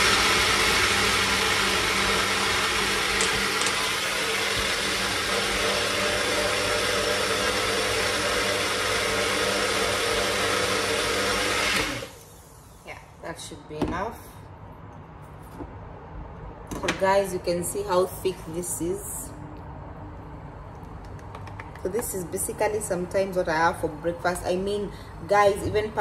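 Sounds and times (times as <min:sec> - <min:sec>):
blender motor running: 0:00.0 - 0:12.9.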